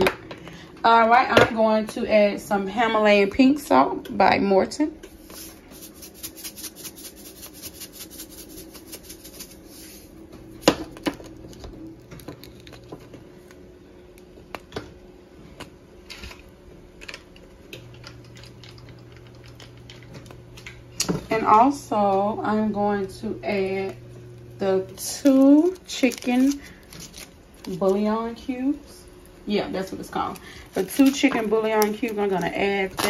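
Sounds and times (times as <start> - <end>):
faint steady hum: 0.0 - 33.0
salt rattling in plastic container: 5.4 - 9.6.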